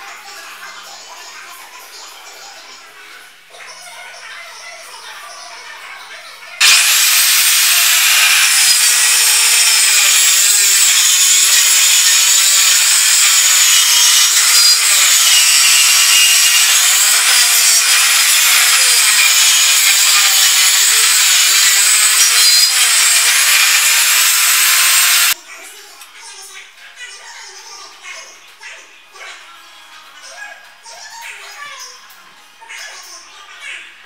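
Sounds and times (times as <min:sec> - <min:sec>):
circular saw cutting plywood: 0:06.6 - 0:25.4.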